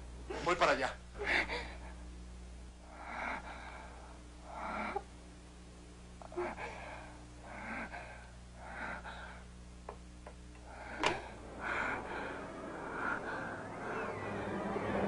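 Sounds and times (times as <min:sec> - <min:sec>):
woman breathing heavily and wheezing: 0:01.2 - 0:02.2, 0:02.8 - 0:05.2, 0:06.2 - 0:09.6, 0:10.6 - 0:14.9.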